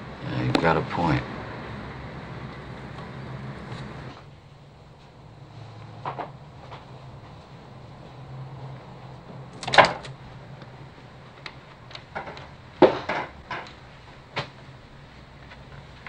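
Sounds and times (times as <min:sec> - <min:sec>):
low steady hum: 0:00.0 - 0:16.0
knocks: 0:12.1 - 0:13.7.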